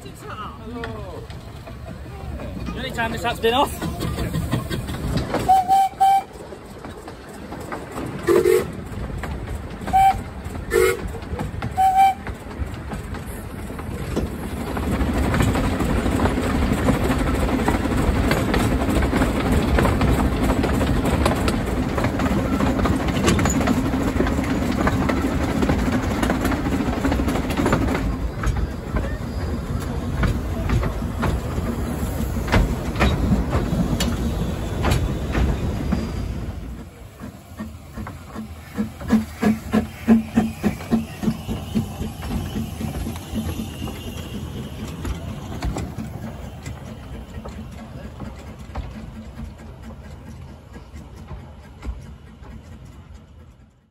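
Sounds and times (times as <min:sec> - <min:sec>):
steam locomotive wheels rumbling: 0:00.0 - 0:53.9
clicks over rail joints: 0:00.7 - 0:36.1, 0:36.7 - 0:53.9
steam whistle toot: 0:05.5 - 0:06.3, 0:08.3 - 0:08.7, 0:09.9 - 0:11.0, 0:11.8 - 0:12.2, 0:39.8 - 0:45.2.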